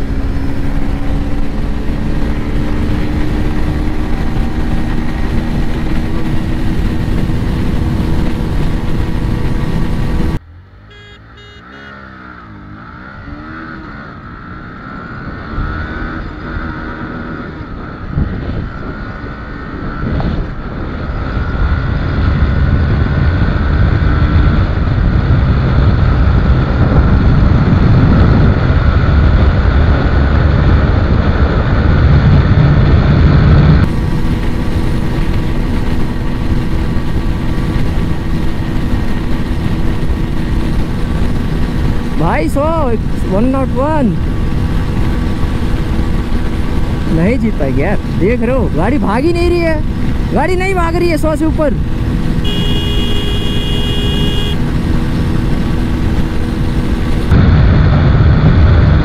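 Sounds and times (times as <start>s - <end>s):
motorcycle accelerating: 0.0s - 59.0s.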